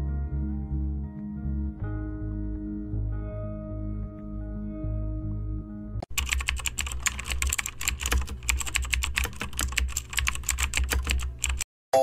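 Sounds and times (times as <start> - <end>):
soft background music: 0.0 - 6.0
fast typing on keyboard: 6.0 - 11.7.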